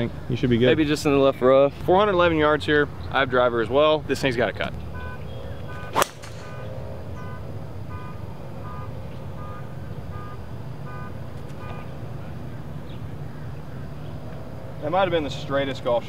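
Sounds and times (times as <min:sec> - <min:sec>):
golf ball struck by driver: 0:05.9 - 0:06.7
faint electronic beep: 0:06.5 - 0:11.8.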